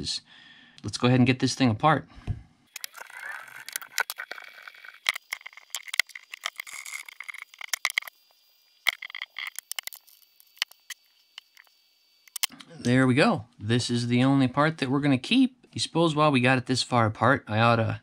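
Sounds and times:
screws and plastic parts rattling: 2.7 - 8.2, 8.8 - 11.7.

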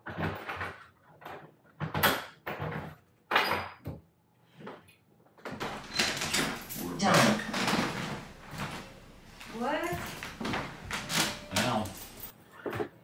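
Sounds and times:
door lock and handle rattling: 5.5 - 12.3.

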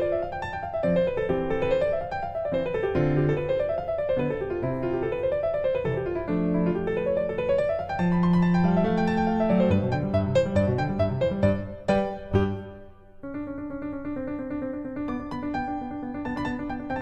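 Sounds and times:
piano music: 0.0 - 17.0.

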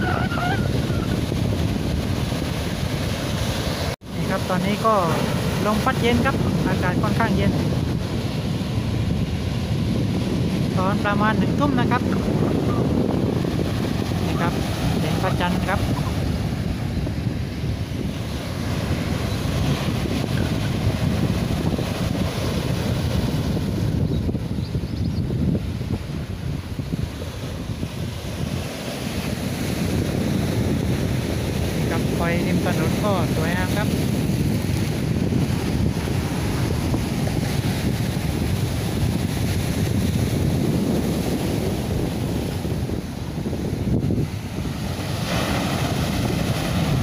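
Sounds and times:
waves breaking on shore: 0.0 - 47.0
wind buffeting microphone: 0.0 - 47.0.

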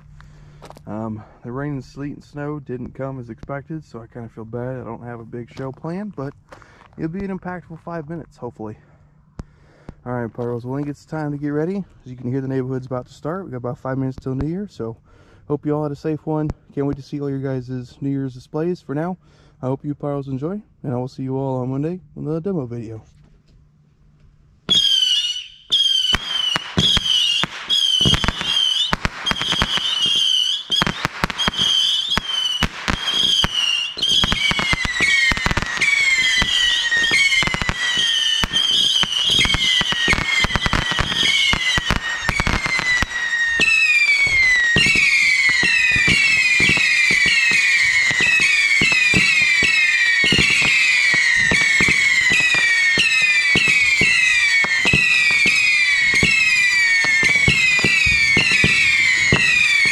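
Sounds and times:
fireworks pops and bangs: 0.6 - 1.0, 2.7 - 3.6, 5.4 - 8.0, 9.4 - 11.1, 14.1 - 14.6, 24.7 - 59.9
fireworks whistling: 24.7 - 59.9.

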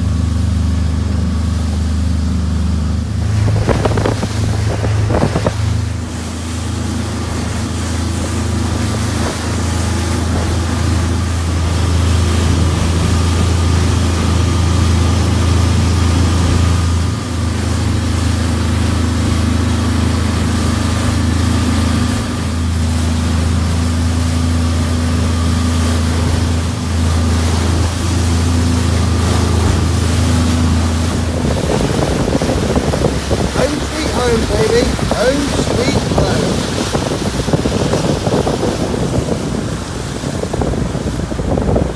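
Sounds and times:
boat engine droning: 0.0 - 41.9
water rushing past hull: 0.0 - 41.9
wind on microphone: 3.1 - 17.2, 25.2 - 41.9.

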